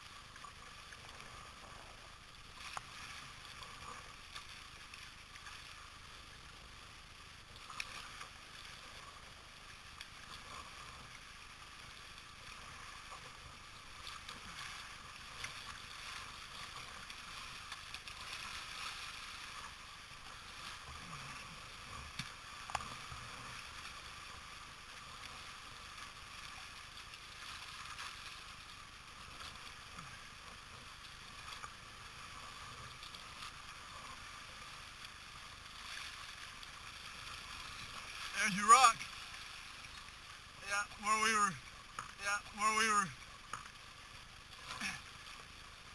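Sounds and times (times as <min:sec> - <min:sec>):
river water rushing: 0:38.0 - 0:39.7, 0:40.6 - 0:43.3.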